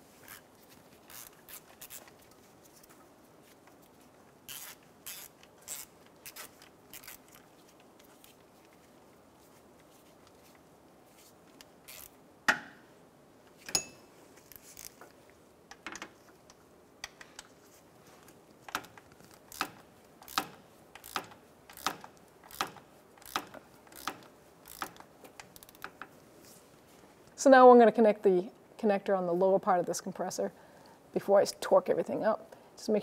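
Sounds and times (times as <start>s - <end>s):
ratchet clicks: 1.1s - 2.1s, 4.5s - 7.4s, 18.7s - 26.0s
sharp metal clinks: 13.7s - 14.1s.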